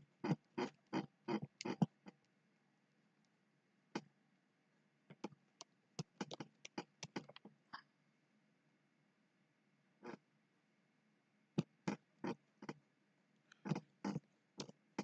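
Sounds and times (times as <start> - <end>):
computer mouse clicking: 0.3 - 1.9, 5.1 - 7.5, 13.5 - 14.8.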